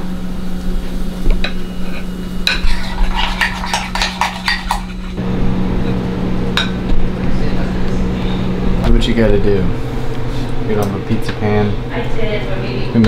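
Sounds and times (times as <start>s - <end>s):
steady low hum: 0.0s - 13.0s
cutlery scraping ceramic plate: 1.8s - 5.2s.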